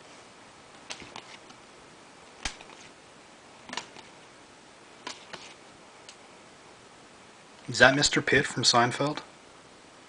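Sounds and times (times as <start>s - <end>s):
trading cards clicking: 0.9s - 1.4s, 3.7s - 4.1s.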